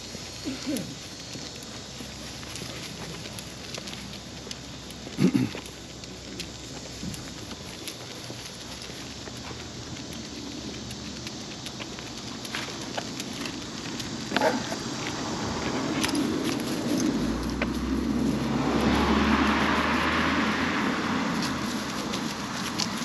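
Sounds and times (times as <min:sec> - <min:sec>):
vehicle driving past: 0:14.9 - 0:23.0.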